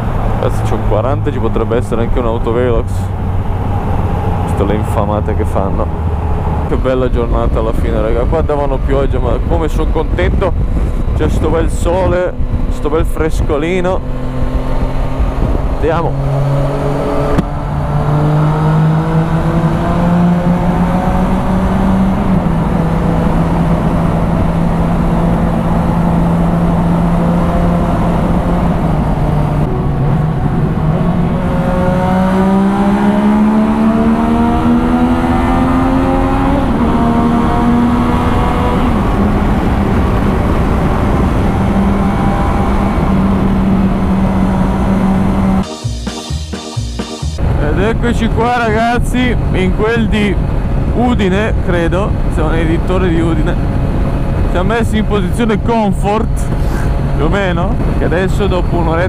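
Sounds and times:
wind rush: 0.0 - 35.2, 47.4 - 59.0
motorcycle engine at road speed: 0.0 - 45.7, 47.2 - 59.0.

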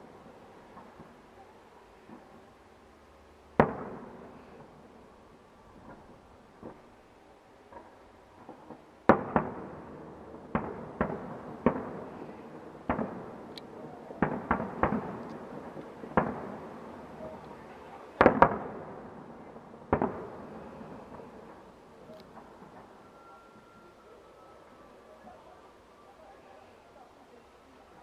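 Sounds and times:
firework shells bursting: 10.5 - 19.1.

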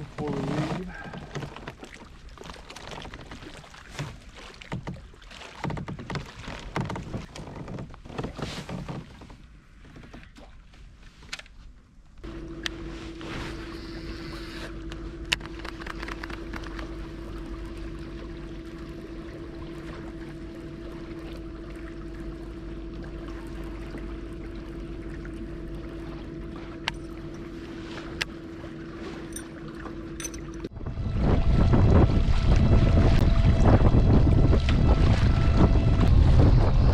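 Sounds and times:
electric motor whining: 12.3 - 15.6
sharp clicks: 15.3 - 16.9.

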